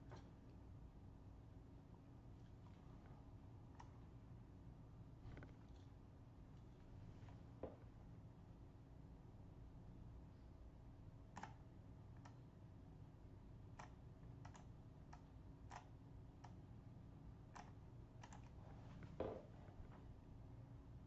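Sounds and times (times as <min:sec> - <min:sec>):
computer mouse clicking: 0:11.4 - 0:12.4, 0:13.8 - 0:16.6, 0:17.5 - 0:18.6.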